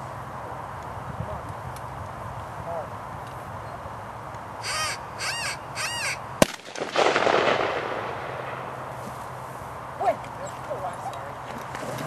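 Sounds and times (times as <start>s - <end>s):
caw-like calls: 4.6s - 6.3s
gunshot crack: 6.4s - 8.7s.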